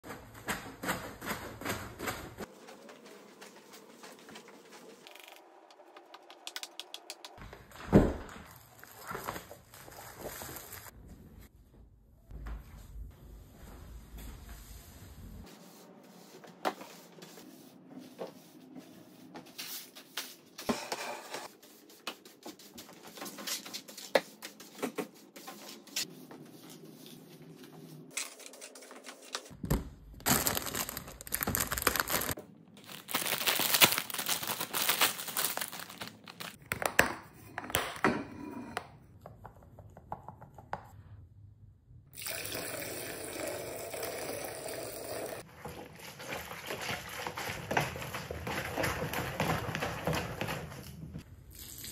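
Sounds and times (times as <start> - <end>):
water rushing in a plastic bucket: 45.4 - 50.9.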